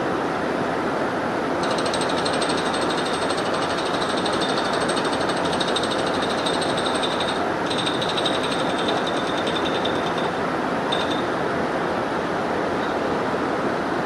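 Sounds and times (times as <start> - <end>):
rapid mechanical hammering: 1.6 - 11.3.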